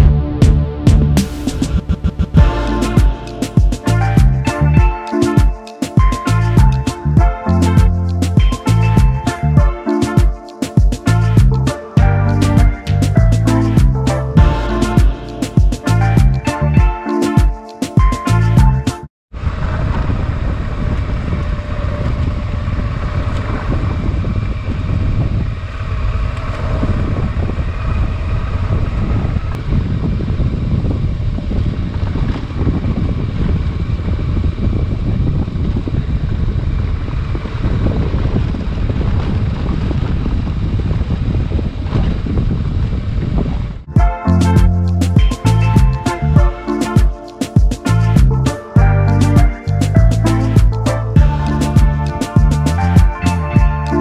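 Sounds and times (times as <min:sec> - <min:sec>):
background music: 0:00.0 - 0:19.1, 0:43.9 - 0:54.0
wind noise on microphone: 0:00.0 - 0:54.0.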